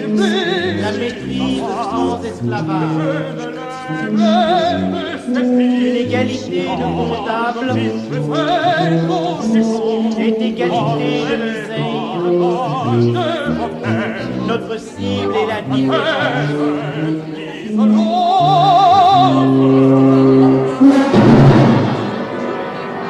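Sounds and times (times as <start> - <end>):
operatic voice singing: 0.0 - 23.0
orchestral chords: 16.4 - 23.0
loud orchestral attack: 17.7 - 23.0.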